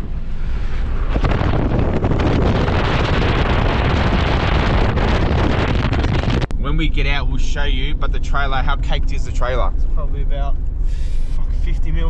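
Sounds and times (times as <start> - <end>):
wind rushing through car window: 0.0 - 7.2.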